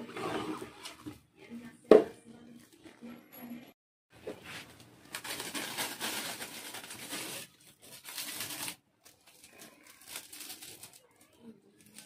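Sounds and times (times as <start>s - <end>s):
plastic wrap film crinkling: 4.5s - 12.0s.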